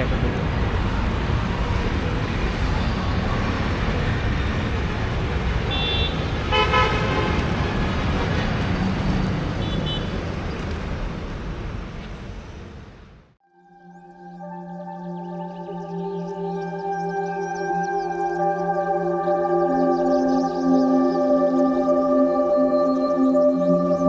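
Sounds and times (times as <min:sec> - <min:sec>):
street traffic: 0:00.0 - 0:13.4, 0:14.0 - 0:24.0
vehicle horns honking: 0:05.6 - 0:07.8, 0:09.5 - 0:10.2.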